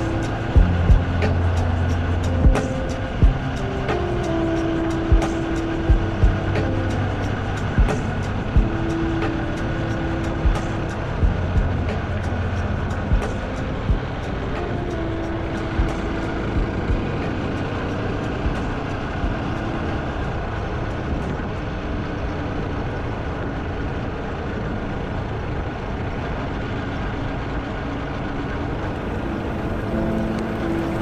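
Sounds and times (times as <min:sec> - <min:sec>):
wind noise on microphone: 0:00.0 - 0:23.8
motorcycle engine: 0:00.0 - 0:31.0.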